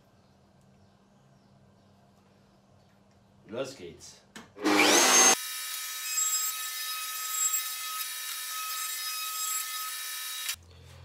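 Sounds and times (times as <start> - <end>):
wood router cutting wood: 4.6 - 10.6.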